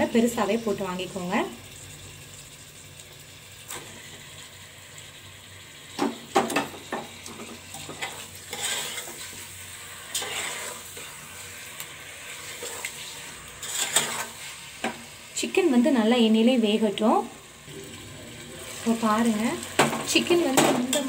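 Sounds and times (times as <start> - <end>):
chicken sizzling in hot oil: 0.0 - 21.0
metal spoon scraping a pot: 7.7 - 9.4, 10.1 - 11.4, 12.4 - 14.6.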